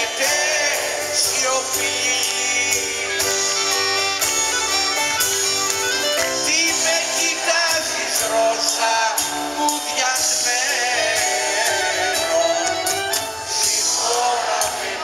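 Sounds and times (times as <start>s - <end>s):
bass: 0.0s - 15.0s
drums: 0.0s - 15.0s
piano: 0.0s - 15.0s
lead melody with vibrato: 1.4s - 6.8s.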